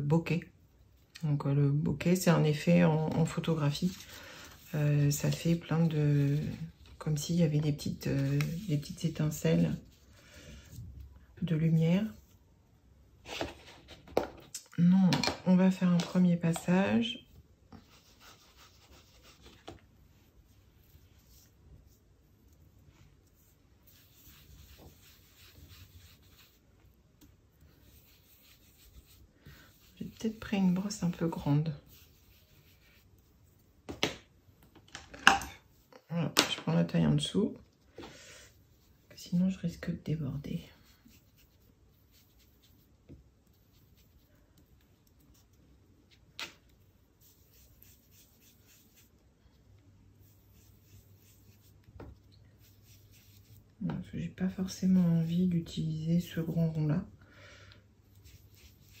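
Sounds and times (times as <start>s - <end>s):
brush rubbing on cardstock: 3.2s - 10.2s, 17.2s - 33.8s, 38.5s - 46.2s, 46.8s - 49.2s, 50.1s - 51.9s, 52.5s - 53.7s, 54.4s - 56.7s, 58.0s - 59.0s.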